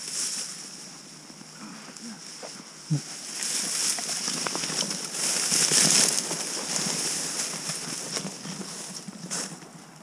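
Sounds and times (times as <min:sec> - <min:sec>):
dry grass rustling: 0:00.0 - 0:10.0
footsteps crunching through snow: 0:03.2 - 0:09.6.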